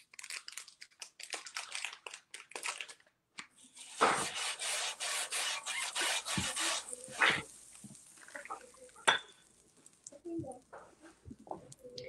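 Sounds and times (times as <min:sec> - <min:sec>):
rustling and scraping: 0:03.6 - 0:08.7.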